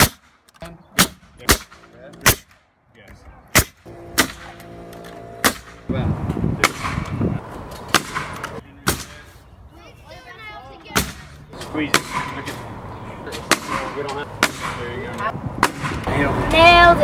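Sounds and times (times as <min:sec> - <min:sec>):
nail gun firing into wood: 0:01.0 - 0:02.6, 0:03.5 - 0:04.6, 0:05.4 - 0:05.8, 0:06.6 - 0:07.2, 0:07.9 - 0:09.1.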